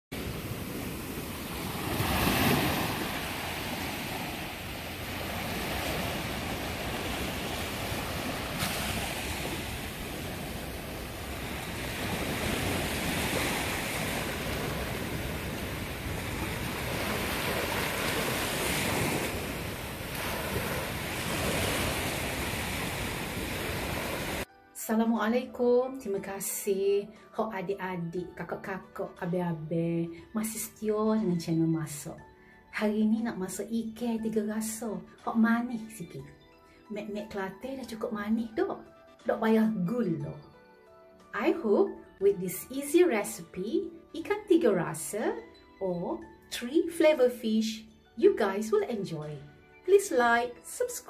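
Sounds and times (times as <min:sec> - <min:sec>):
sea waves breaking on beach: 0:00.1 - 0:24.5.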